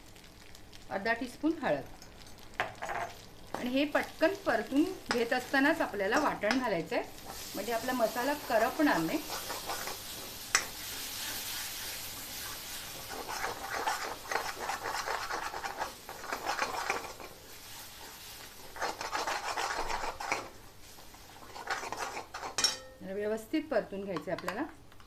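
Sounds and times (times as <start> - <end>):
spoon scraping paste in a pan: 6.1 - 22.8.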